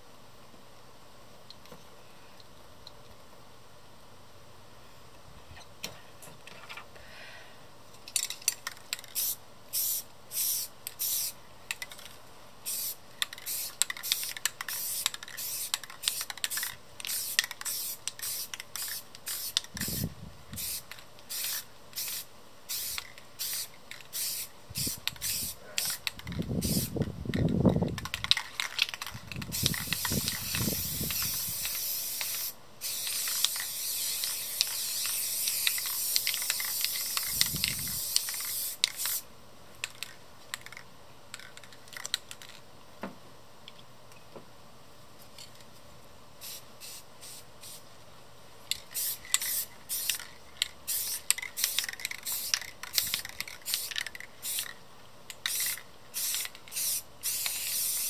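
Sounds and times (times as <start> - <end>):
spray paint can hissing: 8.2 - 39.2, 46.4 - 47.8, 48.7 - 58.0.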